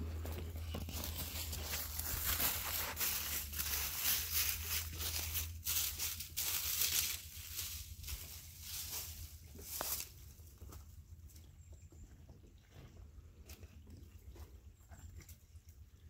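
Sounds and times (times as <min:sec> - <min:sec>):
footsteps crunching dry leaves: 0:00.0 - 0:10.6.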